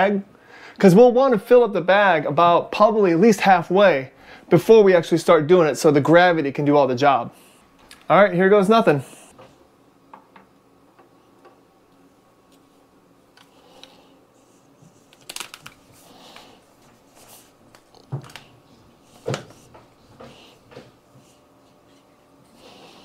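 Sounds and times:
faint steady hum: 0:00.0 - 0:23.0
handling clicks and rustles: 0:14.8 - 0:21.0.

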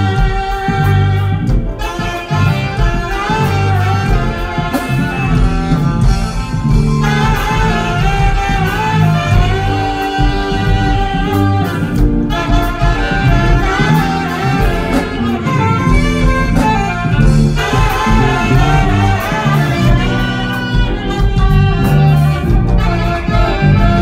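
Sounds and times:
bass line: 0:00.0 - 0:24.0
drums and cymbals: 0:00.0 - 0:24.0
saxophones playing jazzy melody: 0:00.0 - 0:24.0.

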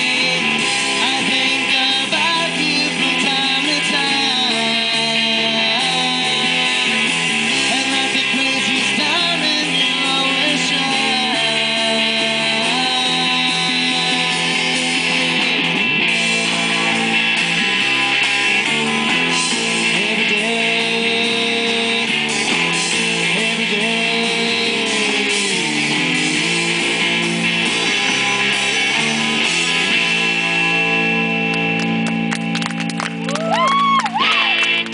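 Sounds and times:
electric guitars: 0:00.0 - 0:34.9.

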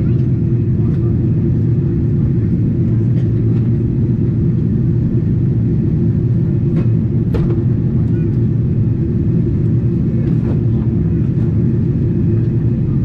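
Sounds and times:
aircraft cabin engine rumble: 0:00.0 - 0:13.0.

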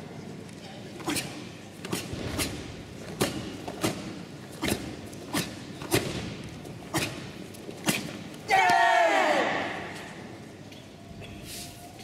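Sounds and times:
faint hall background: 0:00.0 - 0:12.0
sharp cracks of karate techniques: 0:01.0 - 0:10.3.

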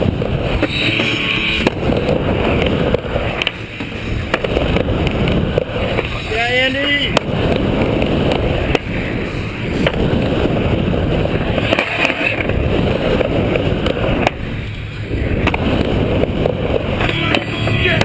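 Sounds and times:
skateboard clacks: 0:00.0 - 0:18.0
skateboard wheels rumbling on wood: 0:00.0 - 0:18.0.

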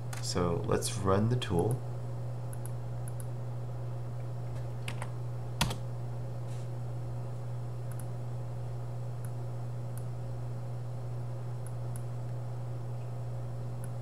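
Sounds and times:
steady low hum: 0:00.0 - 0:14.0
computer keyboard keystrokes: 0:04.8 - 0:05.8.

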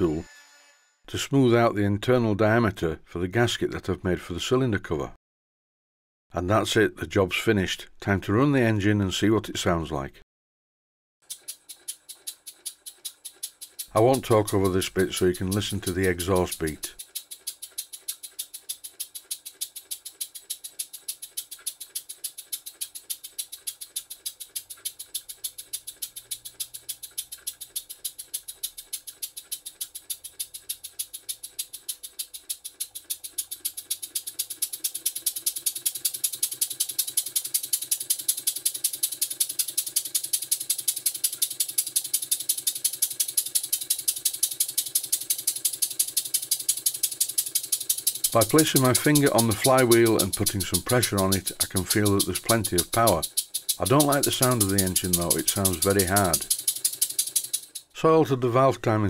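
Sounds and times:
model steam engine puffing: 0:11.3 - 0:57.9.

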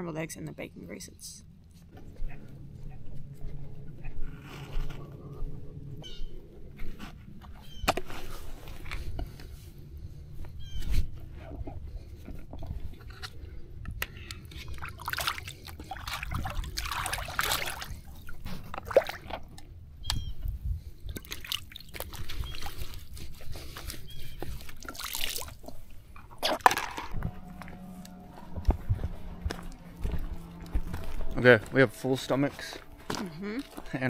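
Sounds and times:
water sloshing and trickling: 0:11.6 - 0:34.0.

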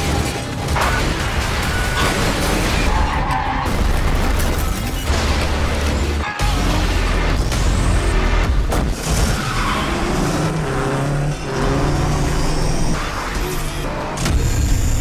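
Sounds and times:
vehicle crash and skid effects: 0:00.0 - 0:10.6
dramatic music: 0:00.0 - 0:15.0.

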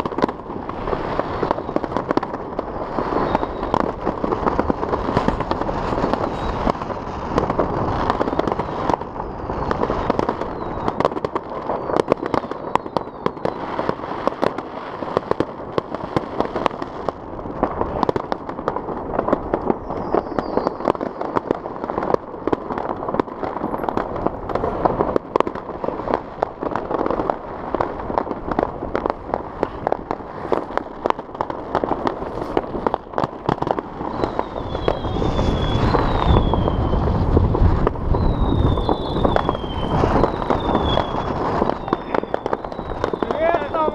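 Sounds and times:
fireworks crackling and banging: 0:00.0 - 0:43.9.

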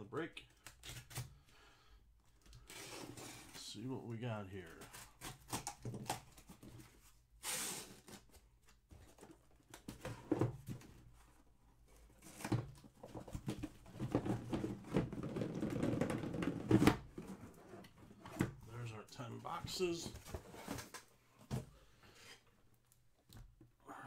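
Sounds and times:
box cutter slitting tape: 0:00.6 - 0:01.4, 0:04.9 - 0:06.4, 0:07.4 - 0:08.2
cardboard flaps scraping and rustling: 0:19.5 - 0:21.7.

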